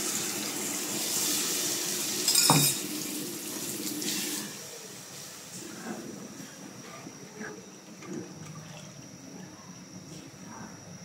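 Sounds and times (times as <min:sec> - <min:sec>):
water sloshing in a pot: 0:06.2 - 0:09.4.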